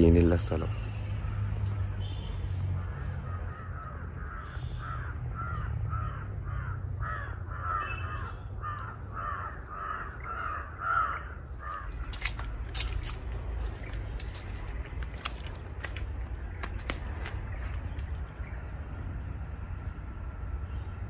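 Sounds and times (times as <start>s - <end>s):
crows cawing: 2.5s - 17.5s.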